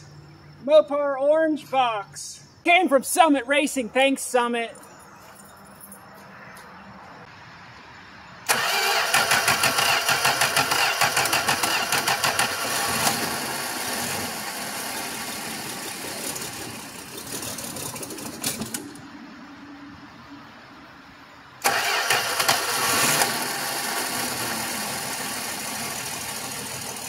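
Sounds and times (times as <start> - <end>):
car engine cranking and chugging: 8.5 - 19.0, 21.6 - 27.0.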